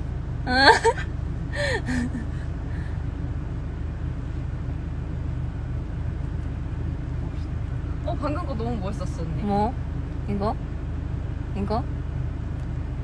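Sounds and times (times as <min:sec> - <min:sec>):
vehicle cabin hum: 0:00.0 - 0:13.0
woman exclaiming: 0:00.5 - 0:01.0.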